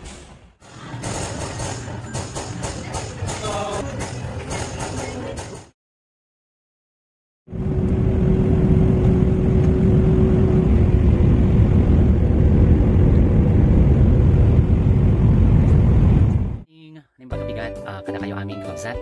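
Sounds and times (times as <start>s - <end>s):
aircraft engine and airflow rumble: 7.5s - 16.6s.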